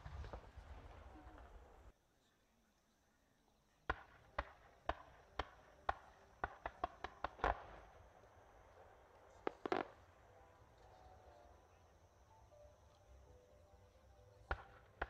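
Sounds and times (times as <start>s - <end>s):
fireworks banging: 0.0s - 1.9s, 3.9s - 11.4s, 14.4s - 15.0s.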